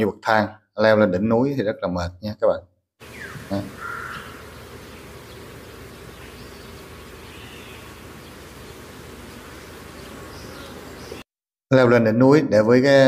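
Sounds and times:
insects buzzing: 3.0s - 11.2s.

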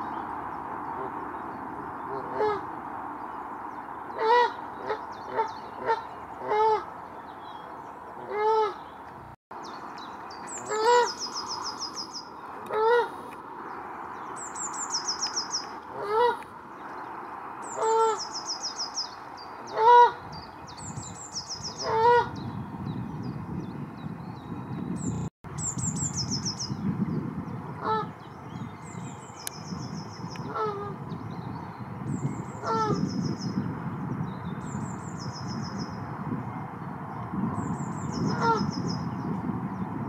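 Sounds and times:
geese honking: 4.2s - 6.9s, 10.6s - 11.2s, 15.9s - 16.4s.

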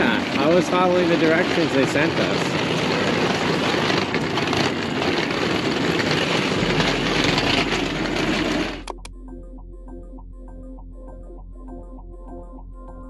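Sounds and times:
passing traffic rushing: 0.0s - 8.9s
soft music with steady beat: 8.9s - 13.0s.

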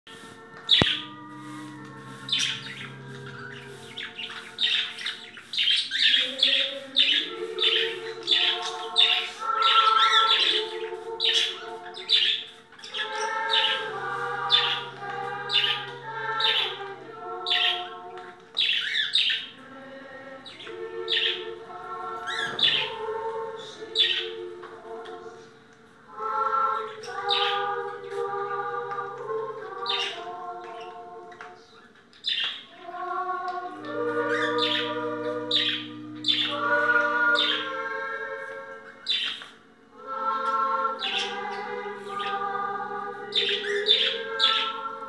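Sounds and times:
birds chirping: 0.1s - 45.0s
slow choral music: 0.1s - 45.0s.

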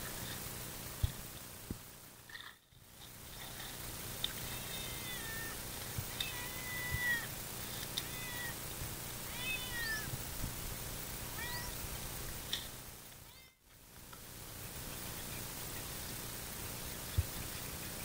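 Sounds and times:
animal whining cry: 4.5s - 7.3s, 8.0s - 8.6s, 9.3s - 10.1s, 11.3s - 11.8s.

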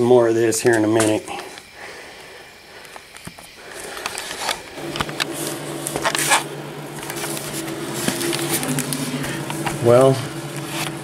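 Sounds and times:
steady low hum: 0.0s - 11.0s
camera handling rustling and clicks: 2.9s - 9.8s.

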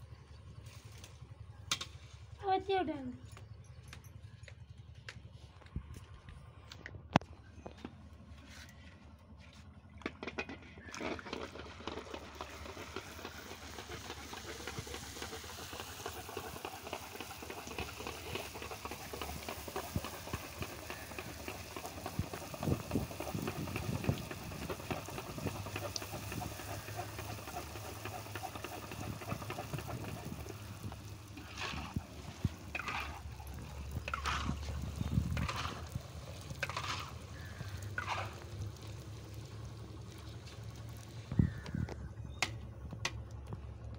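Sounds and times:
food sizzling in hot oil: 12.6s - 41.1s.

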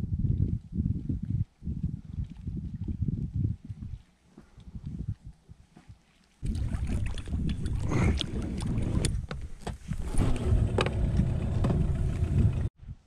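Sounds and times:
wind rumbling on microphone: 0.0s - 13.0s
water splashes: 5.8s - 10.6s.

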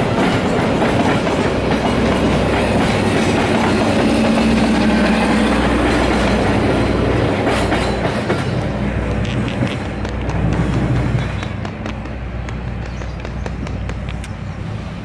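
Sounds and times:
train wheels clattering on rails: 0.0s - 15.0s.

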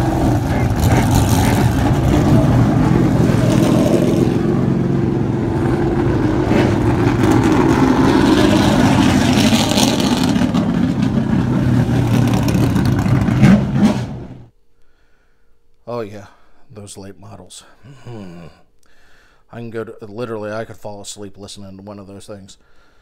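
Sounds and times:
race car engines droning: 0.0s - 14.5s.

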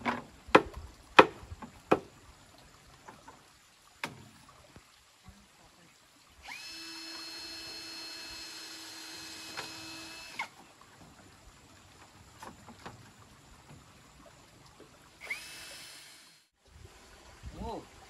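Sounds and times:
small motor whining: 6.4s - 10.6s, 15.2s - 16.6s.

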